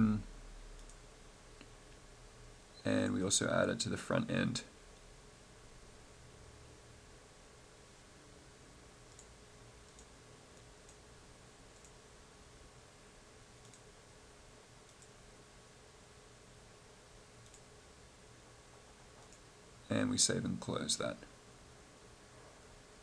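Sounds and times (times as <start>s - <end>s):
low steady hum: 0.0s - 23.0s
computer mouse clicks: 0.8s - 1.0s, 9.1s - 9.3s, 9.9s - 11.0s, 11.7s - 12.0s, 13.6s - 13.9s, 14.8s - 15.2s, 17.4s - 17.7s, 19.2s - 19.5s.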